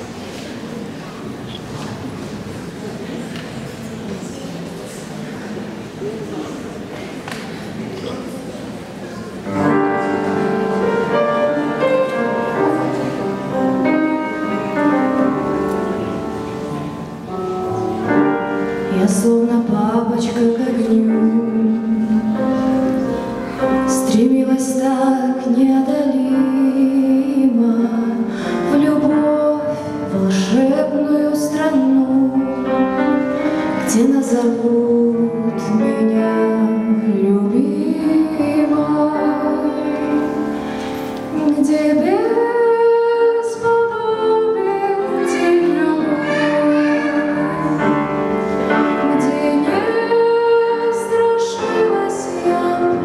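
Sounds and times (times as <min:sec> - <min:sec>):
grand piano accompaniment: 0:00.0 - 0:53.0
woman singing classical song: 0:18.0 - 0:53.0.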